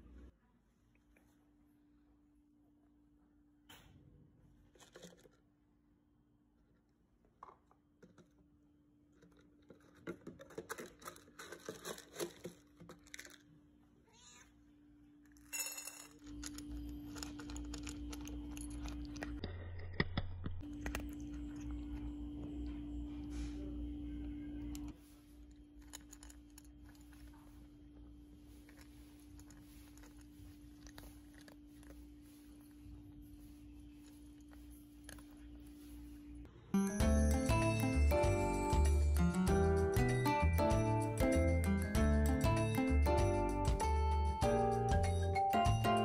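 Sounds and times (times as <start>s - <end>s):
cat meowing: 14.0s - 14.6s
steady low hum: 15.5s - 37.4s.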